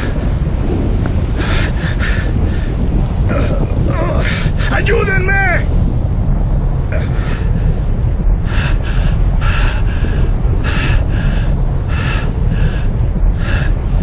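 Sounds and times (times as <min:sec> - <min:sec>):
loud low rumble: 0:00.0 - 0:14.0
man panting: 0:07.0 - 0:14.0.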